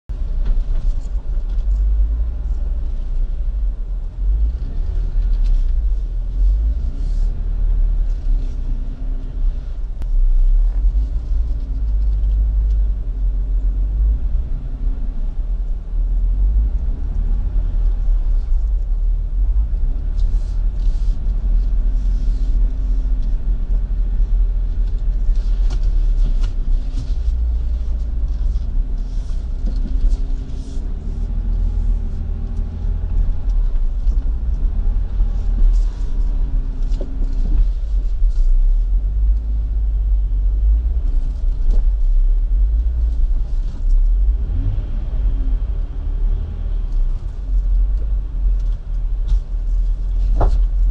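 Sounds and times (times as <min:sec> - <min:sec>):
vehicle engine rumbling: 0:00.0 - 0:50.9.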